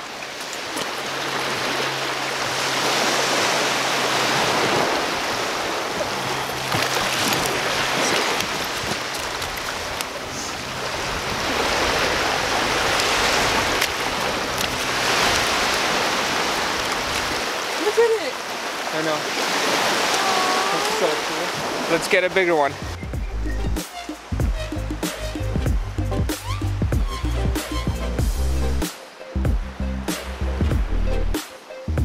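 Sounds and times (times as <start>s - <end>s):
waves washing onto pebble beach: 0.0s - 22.4s.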